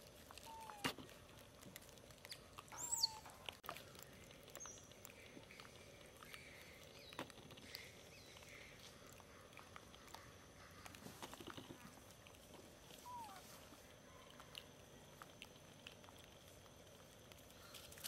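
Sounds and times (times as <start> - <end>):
faint outdoor ambience: 0.0 - 18.0
high squeaky animal calls: 2.7 - 3.4, 13.0 - 13.6.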